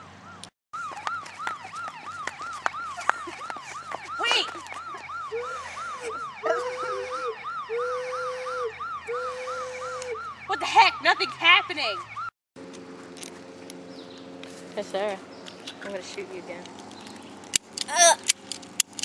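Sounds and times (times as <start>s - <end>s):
low held beep: 5.3s - 10.2s.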